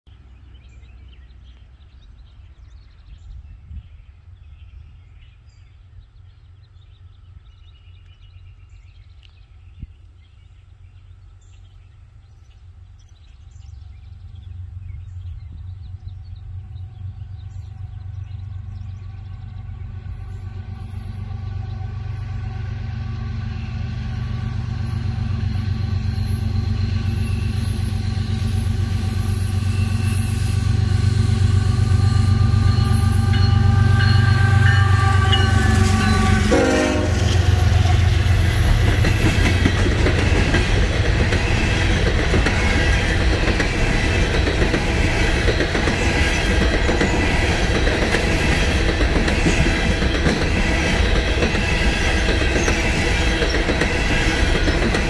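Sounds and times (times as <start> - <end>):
faint birds chirping: 0.1 - 43.6
diesel locomotive engine drone: 0.1 - 55.0.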